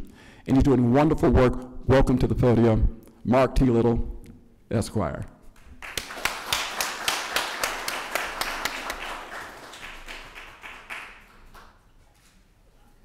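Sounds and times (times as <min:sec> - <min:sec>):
person clapping nearby: 0:05.6 - 0:11.9
audience applause: 0:05.8 - 0:11.8.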